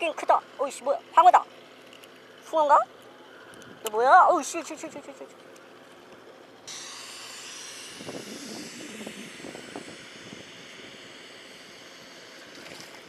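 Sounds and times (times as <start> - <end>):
fishing reel drag buzzing: 6.6 - 13.0.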